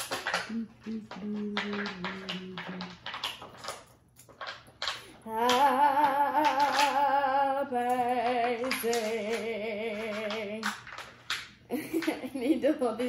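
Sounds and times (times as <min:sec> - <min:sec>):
person singing with vibrato: 0:00.4 - 0:03.0, 0:05.1 - 0:10.8.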